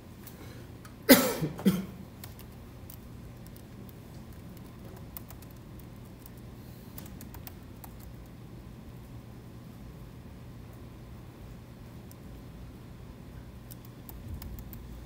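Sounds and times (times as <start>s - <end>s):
low room hum: 0.0s - 15.0s
person coughing: 1.1s - 2.0s.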